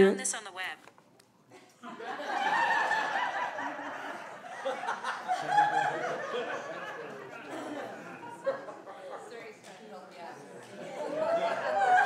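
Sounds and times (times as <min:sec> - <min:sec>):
crowd laughing: 0:01.6 - 0:09.6, 0:10.7 - 0:12.0.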